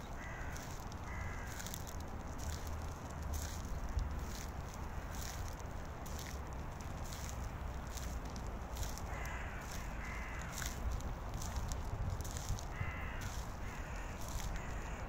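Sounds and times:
footsteps: 0.0 - 15.0
crow cawing: 0.1 - 1.9, 8.8 - 10.8, 12.4 - 15.0.

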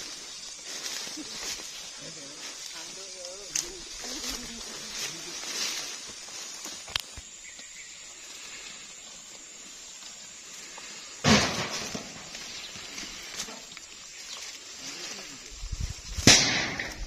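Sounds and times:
rustling through undergrowth: 0.0 - 17.0
loud sudden thump: 11.2 - 12.2.

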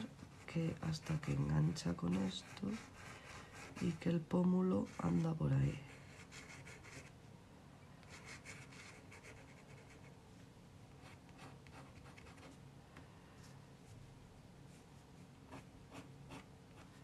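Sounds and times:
pencil scratching on paper: 0.0 - 4.2, 4.8 - 7.1, 8.1 - 10.1, 11.0 - 12.6, 15.5 - 17.0
low steady hum: 0.0 - 17.0.

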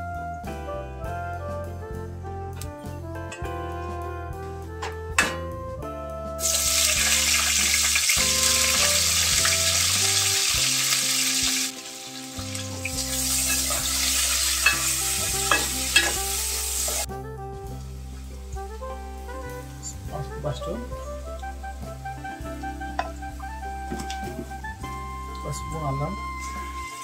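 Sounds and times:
onions sizzling in hot oil: 6.4 - 17.1, 26.2 - 27.0.

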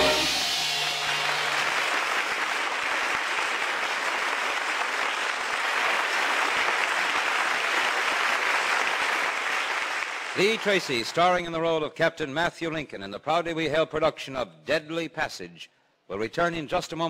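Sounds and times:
orchestral sting with timpani: 0.0 - 2.0
audience applause: 0.0 - 11.3.

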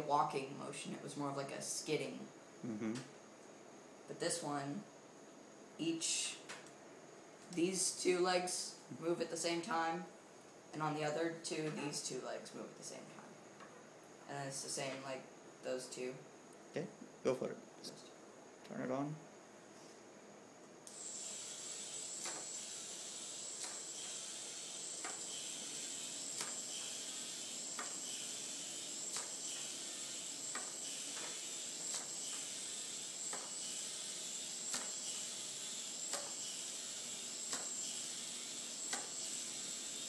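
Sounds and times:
toy robot motor whining: 20.9 - 40.0.

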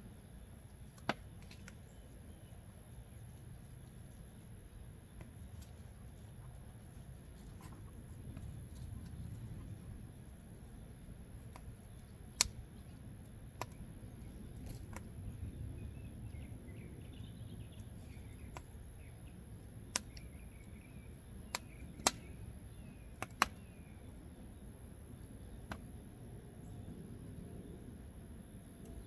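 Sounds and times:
low steady rumble: 0.0 - 29.0
wood fire crackling: 3.7 - 15.7, 21.5 - 22.2.

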